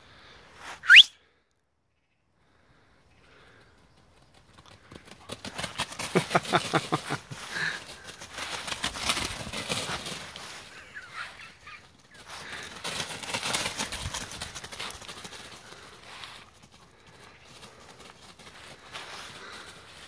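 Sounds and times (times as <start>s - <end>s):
dog running through dry leaves: 4.3s - 20.0s.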